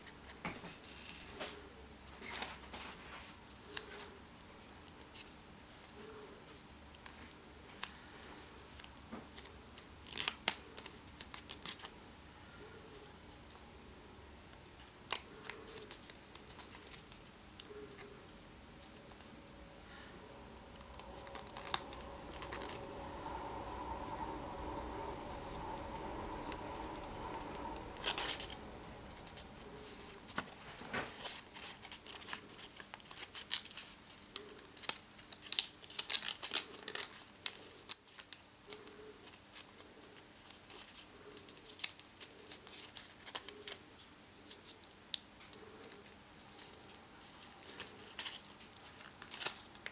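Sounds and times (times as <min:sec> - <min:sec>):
steady background hum: 0:00.0 - 0:49.9
paper crackle: 0:06.9 - 0:12.0, 0:14.6 - 0:43.9, 0:44.5 - 0:49.9
paper crinkling and rustling: 0:06.9 - 0:12.0, 0:14.7 - 0:20.1, 0:20.7 - 0:23.2, 0:25.3 - 0:49.9.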